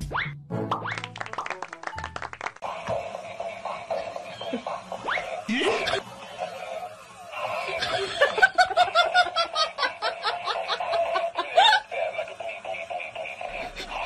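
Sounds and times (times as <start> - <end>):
music: 0.0 - 7.8, 11.0 - 14.0
high-pitched laughter: 2.7 - 14.0.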